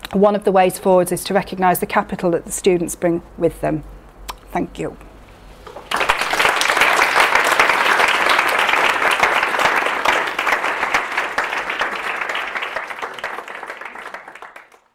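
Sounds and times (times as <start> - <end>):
audience applauding: 5.7 - 14.9.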